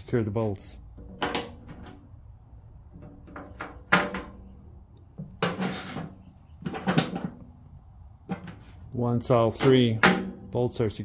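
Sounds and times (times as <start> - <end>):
metal scrapes and knocks: 5.2 - 7.6, 8.2 - 10.5.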